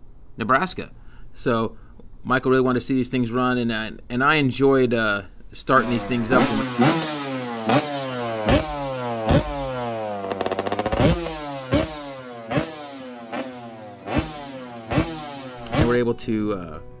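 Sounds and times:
motorcycle engine revving: 0:05.8 - 0:16.1.

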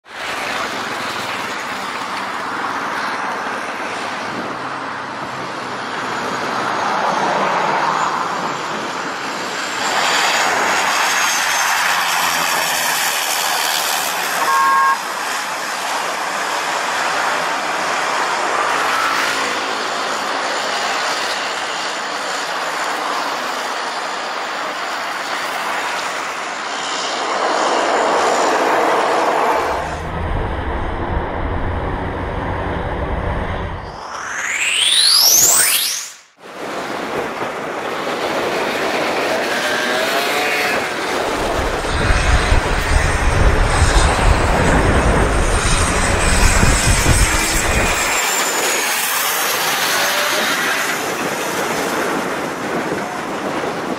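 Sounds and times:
propeller planes passing low: 0:00.0 - 0:36.0, 0:36.6 - 0:53.9
road traffic noise: 0:00.0 - 0:53.9
short horn toot: 0:14.4 - 0:15.1.

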